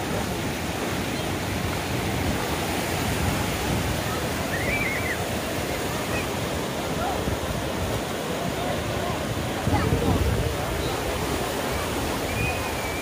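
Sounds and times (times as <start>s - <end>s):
sea surf rushing: 0.0s - 13.0s
wind on microphone: 1.5s - 13.0s.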